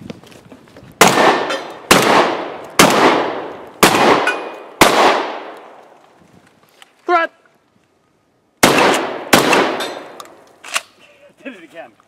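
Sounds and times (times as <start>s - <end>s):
shotgun shots echoing: 1.0s - 5.8s, 8.6s - 10.8s.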